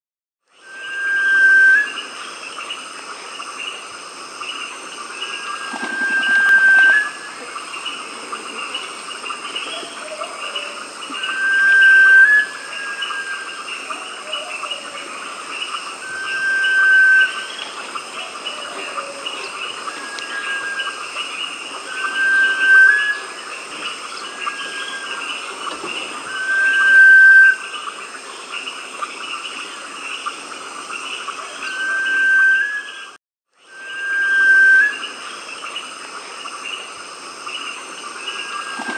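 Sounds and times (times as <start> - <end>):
bird whistling song: 0.6 - 2.1, 5.3 - 7.3, 10.1 - 13.5, 16.0 - 17.7, 19.9 - 21.0, 21.9 - 23.3, 26.2 - 27.6, 31.6 - 35.1
background bird chorus: 1.9 - 32.2.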